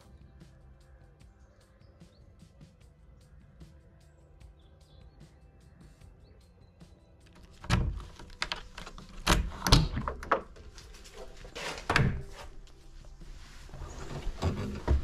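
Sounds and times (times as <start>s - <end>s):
dull thumps and knocks: 14.0s - 15.0s.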